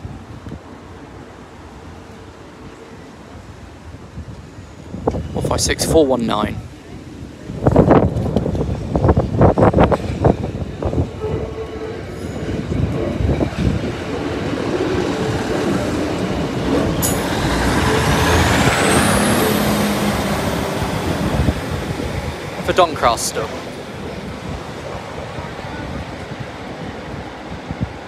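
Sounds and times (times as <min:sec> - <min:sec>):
train engine and wheels rumbling: 0:00.0 - 0:28.0
high whine: 0:12.7 - 0:27.2.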